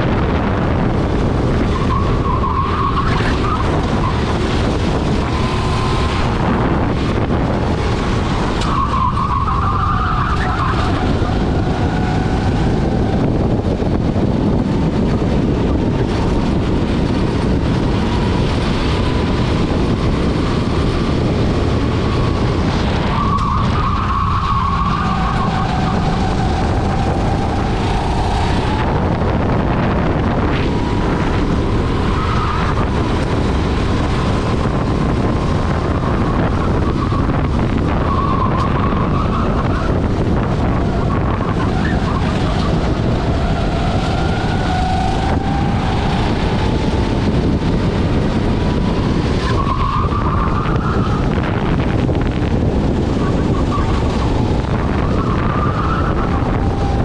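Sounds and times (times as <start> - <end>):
kart engine: 0.0 - 57.0
wind on microphone: 0.0 - 57.0
tyres squealing: 8.5 - 12.7, 22.1 - 29.2.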